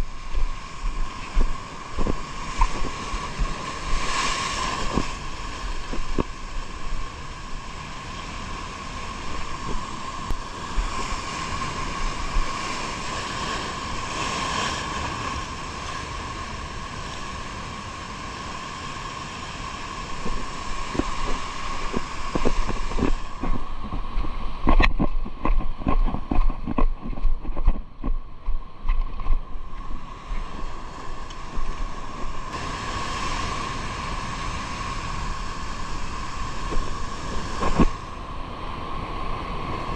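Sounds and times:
water noise: 0.0s - 39.9s
wind: 0.0s - 39.9s
boat engine running: 20.1s - 29.8s
irregular knocks and thumps: 20.2s - 29.5s.

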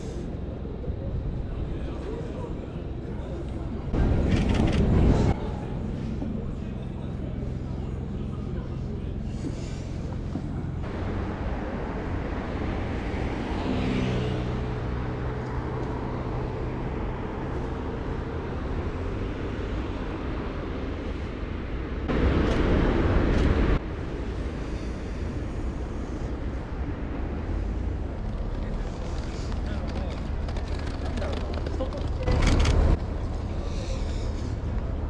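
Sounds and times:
low traffic rumble: 0.0s - 35.0s
vehicle engine passing: 6.6s - 20.9s.

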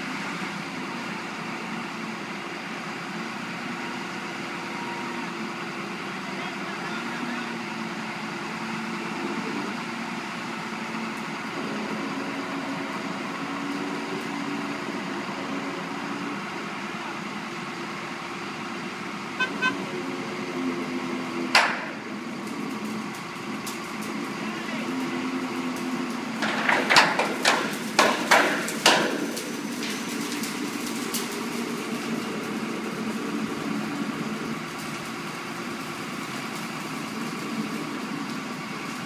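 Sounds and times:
heavy machinery diesel engines: 0.0s - 39.0s
horn toots: 19.4s - 20.0s.

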